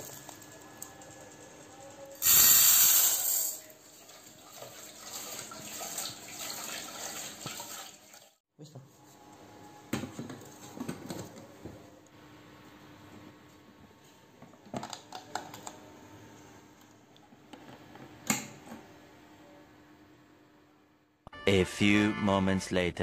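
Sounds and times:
tap water running: 3.9s - 8.4s.

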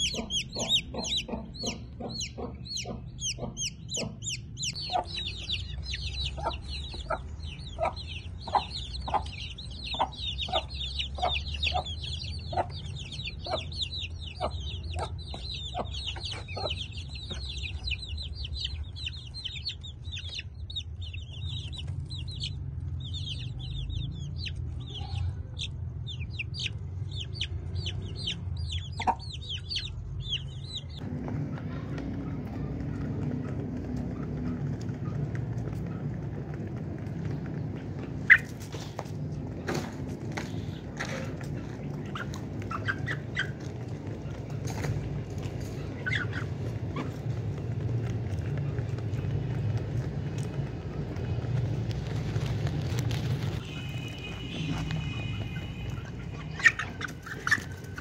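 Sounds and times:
low clucking: 0.0s - 17.4s
chicks peeping: 0.0s - 58.0s.

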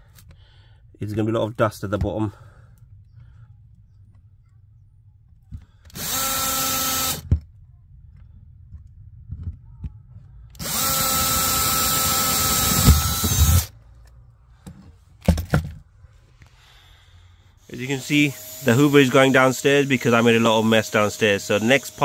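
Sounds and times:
electric drill boring: 5.9s - 7.3s, 10.6s - 13.7s, 17.6s - 22.0s.

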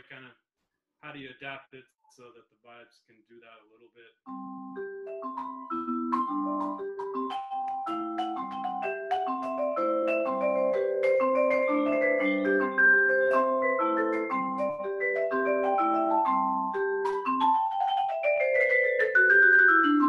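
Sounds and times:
vibraphone played with mallets: 4.3s - 20.0s.

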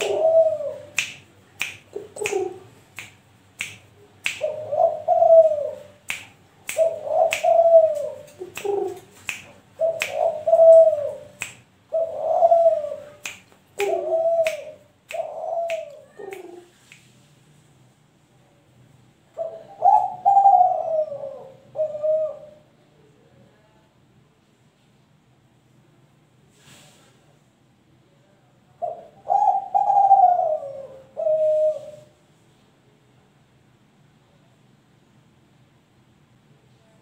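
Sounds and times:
dove cooing: 0.0s - 1.0s, 1.9s - 2.7s, 4.4s - 6.0s, 6.8s - 13.2s, 13.8s - 16.7s, 19.4s - 22.6s, 28.8s - 32.1s.

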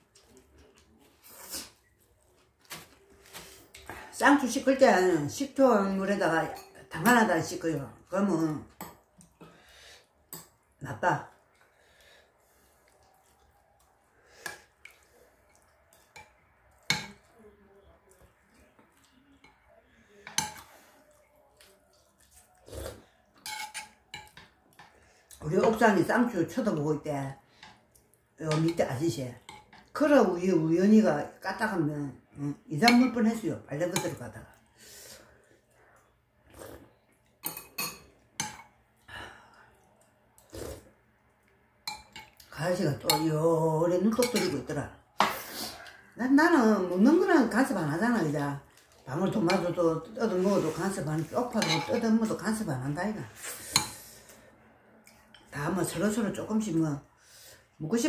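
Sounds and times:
utensils clinking on a bowl: 6.2s - 7.2s, 23.4s - 25.0s, 37.4s - 38.8s, 41.8s - 43.4s, 44.0s - 45.4s, 48.8s - 52.4s
mouth sounds of eating: 16.7s - 23.4s, 34.5s - 37.4s, 39.0s - 41.6s
spoon clinking on porcelain bowl: 23.4s - 24.5s, 43.0s - 43.3s, 44.2s - 44.6s, 51.5s - 52.0s.

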